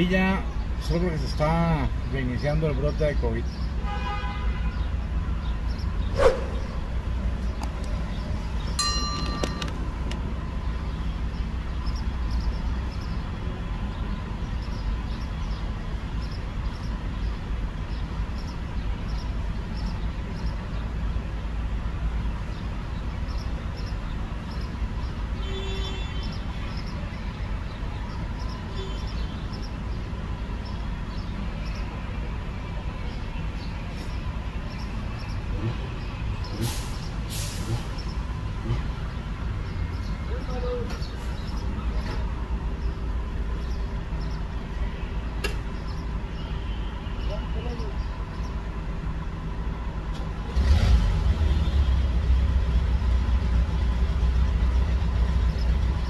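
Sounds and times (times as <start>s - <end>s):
van engine rumbling: 0.0s - 25.5s, 26.2s - 56.0s.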